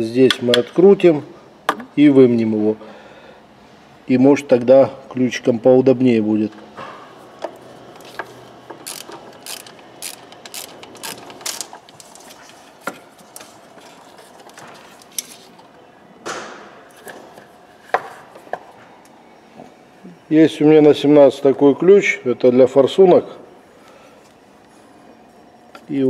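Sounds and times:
metallic clicks and rattles of tools: 8.8s - 12.2s.

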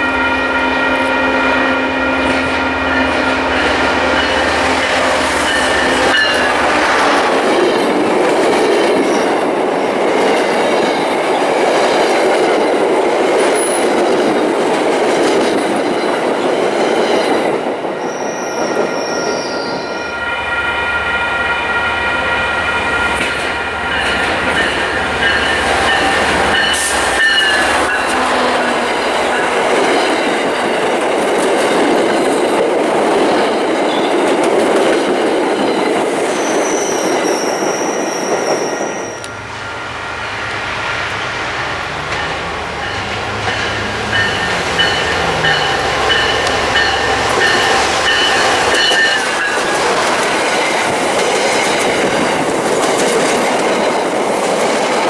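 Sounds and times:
diesel locomotive engine: 0.0s - 55.0s
train wheels rumbling and clattering: 2.0s - 20.0s, 20.8s - 55.0s
wheel squeal: 18.0s - 20.1s, 36.3s - 39.4s.

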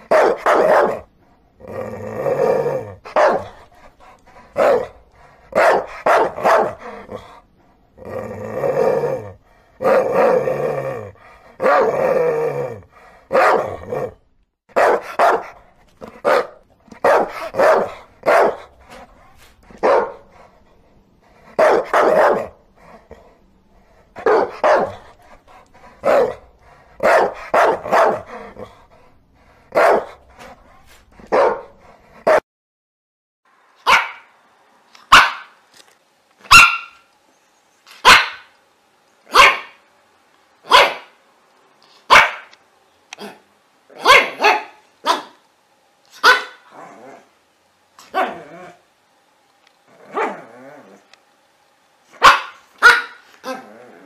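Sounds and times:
dog barking: 0.0s - 1.1s, 3.1s - 3.6s, 4.6s - 6.8s, 11.6s - 12.0s, 13.3s - 13.8s, 14.7s - 18.7s, 19.8s - 20.3s, 21.5s - 22.6s, 24.2s - 25.0s, 26.0s - 26.4s, 27.0s - 28.4s, 29.7s - 30.2s, 31.2s - 32.4s, 33.8s - 34.3s, 35.1s - 35.6s, 36.4s - 37.1s, 38.0s - 38.5s, 39.3s - 39.8s, 40.6s - 41.2s, 42.1s - 42.6s, 44.0s - 45.4s, 46.1s - 46.7s, 52.2s - 53.3s.

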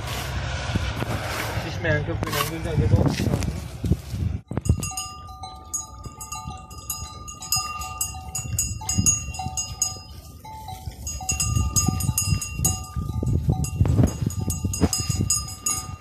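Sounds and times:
sheep bells clanking: 4.5s - 16.0s.

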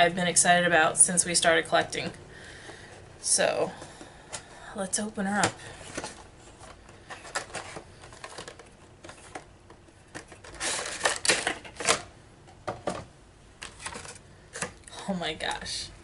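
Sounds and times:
packaging clicks and rustling: 5.3s - 12.1s, 13.6s - 14.9s.

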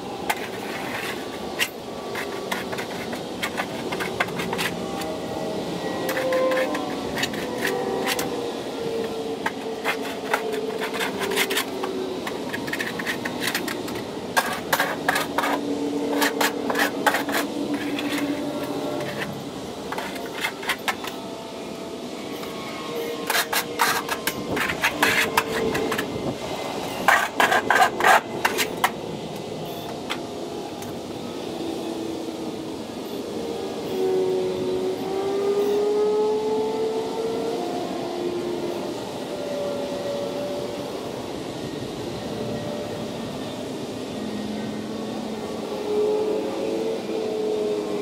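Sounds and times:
background music of sustained notes: 3.5s - 27.1s.

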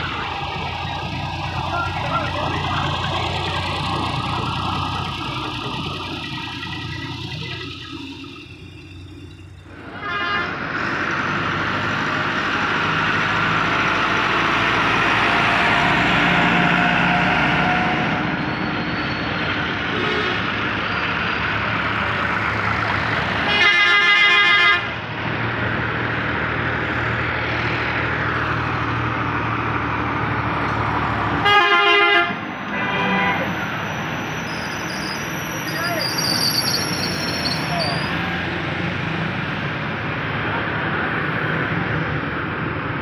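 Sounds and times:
traffic passing: 0.0s - 43.0s
vehicle horn blaring: 9.8s - 10.6s, 19.9s - 20.5s, 23.4s - 24.9s, 31.4s - 33.6s.

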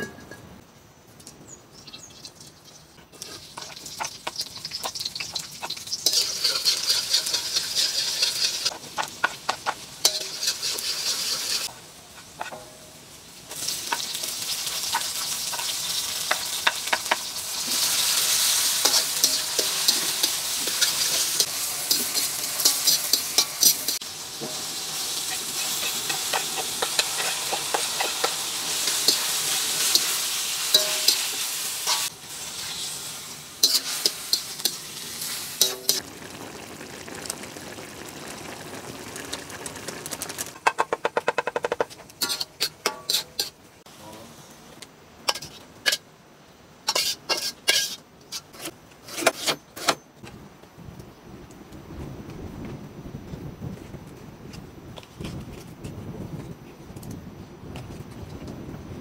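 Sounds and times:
food sizzling in hot oil: 1.7s - 43.8s, 46.8s - 48.6s
metal spatula scraping a wok: 3.2s - 12.8s, 13.5s - 36.0s, 40.6s - 43.6s, 45.2s - 46.1s, 46.8s - 50.0s.

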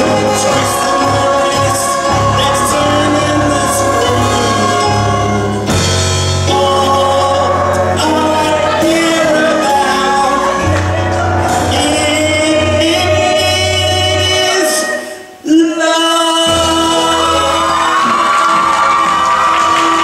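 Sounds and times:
band with strong bass line: 0.0s - 15.0s
show tune singing: 0.0s - 20.0s.

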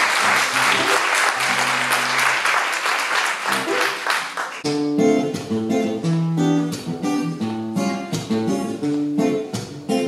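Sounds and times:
applause: 0.0s - 4.7s
acoustic guitar strumming chords: 4.6s - 10.0s.

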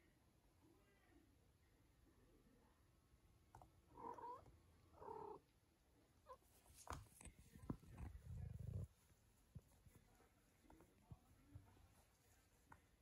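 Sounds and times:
cat purring: 3.5s - 5.5s, 6.2s - 13.0s.

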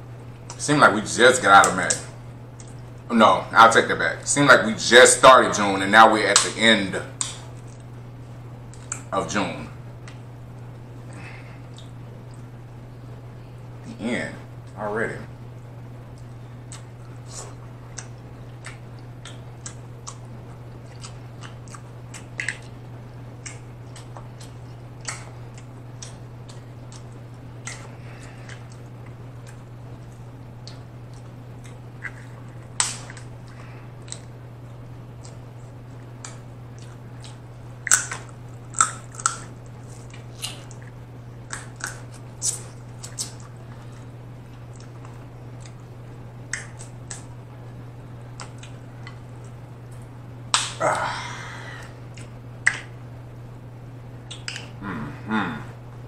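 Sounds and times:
steady low hum: 0.0s - 56.0s
chewing and lip-smacking: 1.8s - 3.0s, 8.7s - 9.1s, 10.0s - 12.6s, 16.1s - 47.3s, 48.3s - 50.8s, 52.1s - 53.0s, 54.2s - 54.8s.

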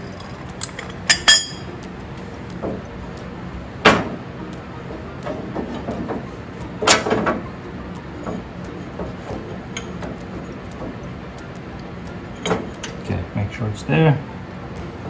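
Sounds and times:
metal clanks: 0.0s - 1.7s.

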